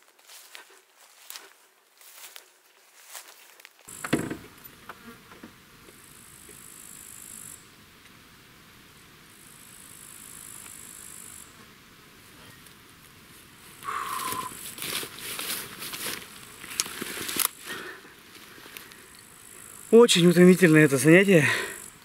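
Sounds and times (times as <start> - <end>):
insects buzzing: 3.9 - 22.0
sharp knocks: 4.0 - 4.6.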